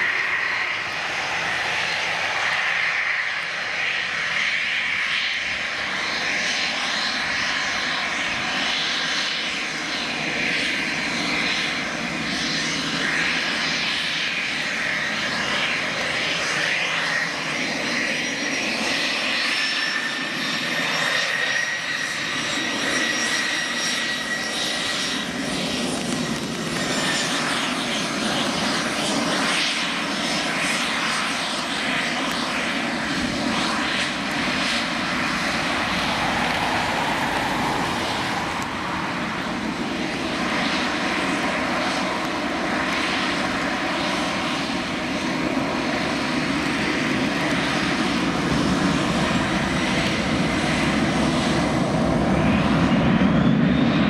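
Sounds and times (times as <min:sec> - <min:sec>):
jet engines whining: 0:00.0 - 0:54.0.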